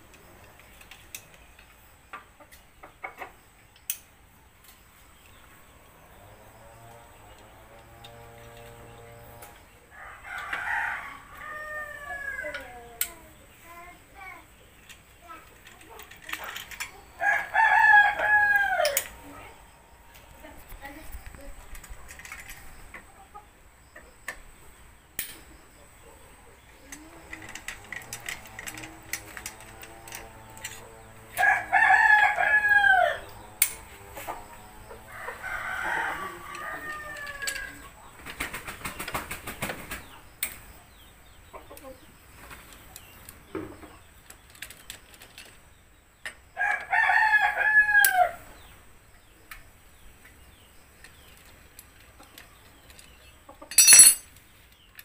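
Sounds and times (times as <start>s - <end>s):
rooster crowing: 9.9s - 12.7s, 17.2s - 20.1s, 31.3s - 33.4s, 34.9s - 37.8s, 46.6s - 48.4s
hand tools clinking on metal: 53.6s - 54.4s.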